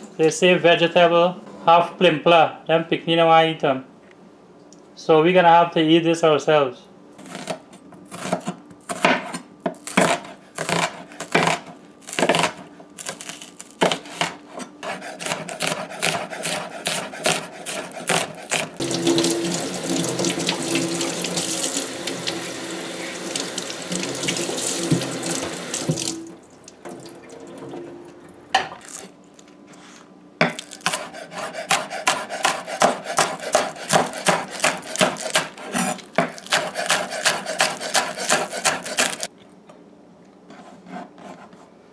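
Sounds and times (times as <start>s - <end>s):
knife chopping on wooden board: 7.2s - 13.2s, 13.8s - 18.8s, 30.4s - 39.3s
tap running into metal sink: 23.2s - 26.3s.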